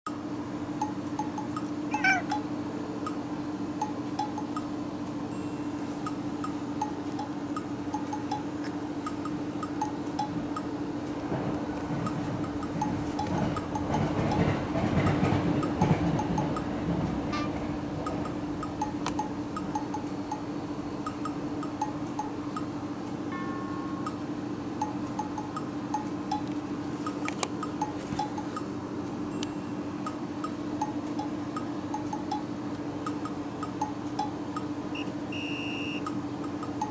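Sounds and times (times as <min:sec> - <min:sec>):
cat meowing: 0:01.9 - 0:02.4
plinking chime-like music: 0:05.3 - 0:06.0, 0:23.3 - 0:25.0.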